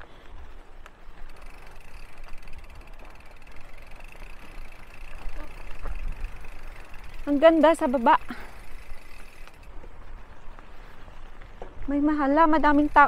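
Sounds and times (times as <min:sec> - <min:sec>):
bike clicks and rattles: 0:00.0 - 0:13.0
bike tyres rumbling on dirt: 0:00.0 - 0:13.0.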